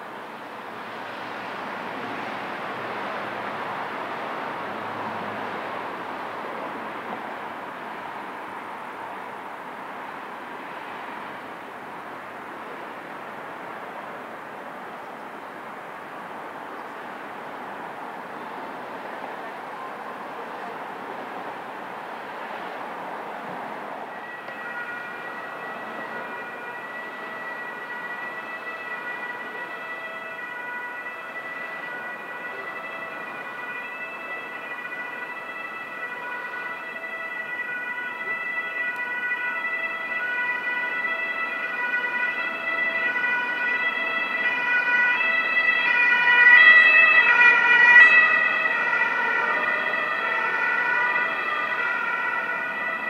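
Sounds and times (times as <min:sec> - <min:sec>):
two-tone emergency siren: 0:23.4 - 0:53.0.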